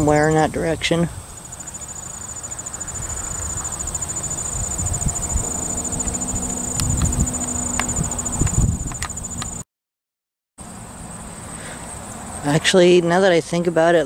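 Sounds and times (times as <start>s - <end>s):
insect trill: 1.1s - 9.6s
low rumble: 2.6s - 9.6s.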